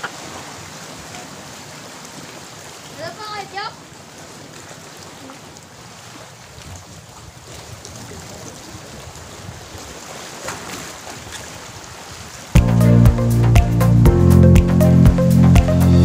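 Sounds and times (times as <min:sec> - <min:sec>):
waves lapping against rocks: 0:00.0 - 0:12.6
wind buffeting microphone: 0:06.4 - 0:10.0.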